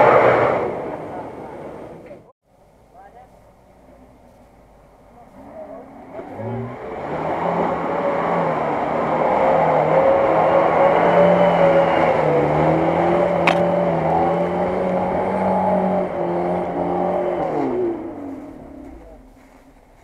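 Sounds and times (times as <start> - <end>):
car engine revving: 4.4 - 20.0.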